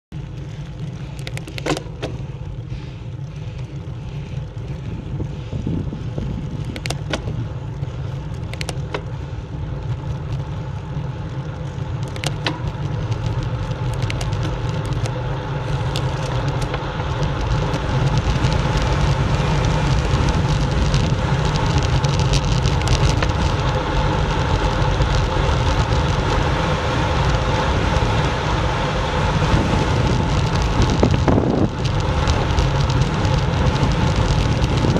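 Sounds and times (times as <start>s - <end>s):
bicycle tyres on tarmac: 0.1s - 34.9s
wind buffeting microphone: 2.2s - 9.6s, 15.6s - 34.9s
clicks and rattles: 6.6s - 7.4s.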